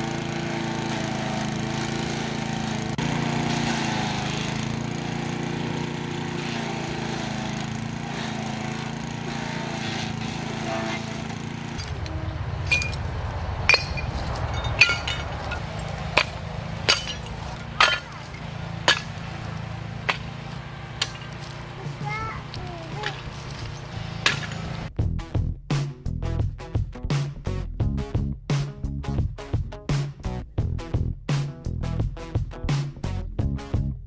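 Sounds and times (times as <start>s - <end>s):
wood chipper running: 0.0s - 24.9s
glass bottles clinking: 13.7s - 19.2s.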